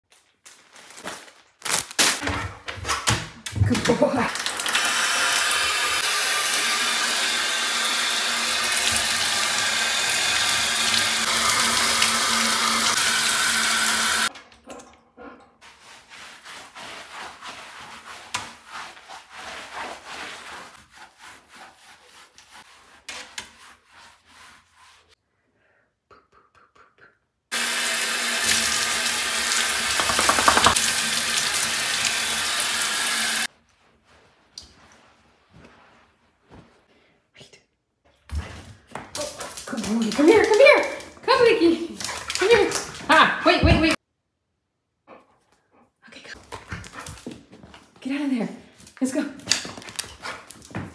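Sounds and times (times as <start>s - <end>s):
faucet running into plastic container: 4.3s - 14.3s, 27.6s - 33.5s
brush scrubbing wet dog coat: 15.6s - 25.2s, 29.9s - 32.2s
towel rubbing coat: 15.6s - 25.2s, 30.0s - 30.8s, 33.5s - 37.0s.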